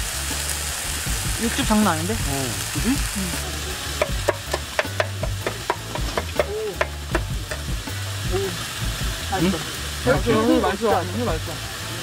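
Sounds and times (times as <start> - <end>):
meat and mushrooms sizzling: 0.0 - 12.0
tongs tapping pan and bowls: 4.0 - 7.8.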